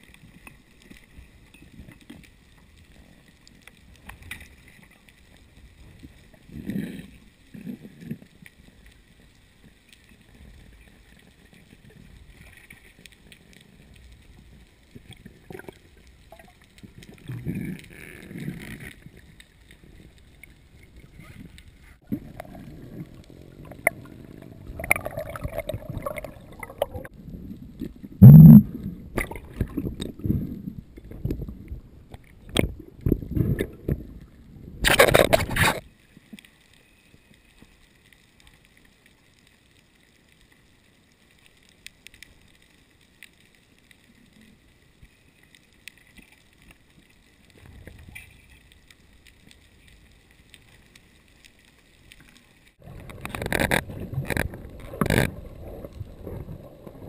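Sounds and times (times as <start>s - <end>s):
water sloshing and gurgling: 0.0s - 36.4s, 45.8s - 57.0s
faint steady hiss: 0.0s - 57.0s
water rushing burst: 22.2s - 27.1s.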